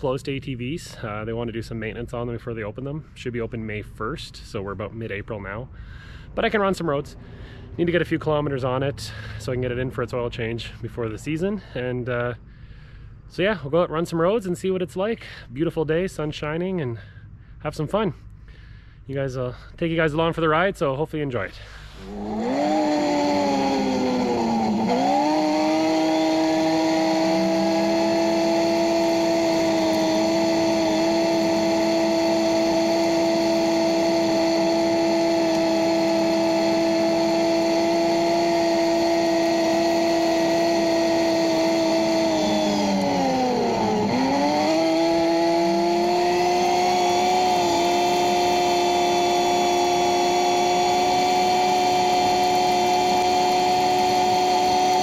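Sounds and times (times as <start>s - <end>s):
engine running: 4.6s - 13.4s, 21.5s - 55.0s.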